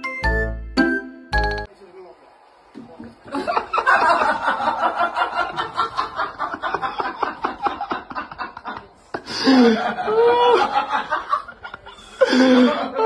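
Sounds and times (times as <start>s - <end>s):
person laughing: 6.7s - 13.0s.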